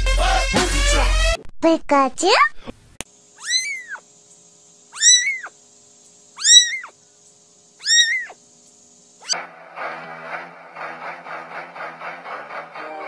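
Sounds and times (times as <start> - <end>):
cat meowing: 3.4 - 4.0, 5.0 - 5.6, 6.4 - 6.9, 7.8 - 8.4.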